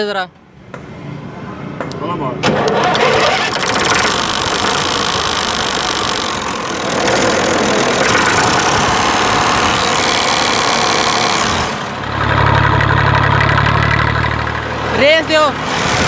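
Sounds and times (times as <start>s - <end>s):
diesel tractor engine idling: 2.6s - 16.0s.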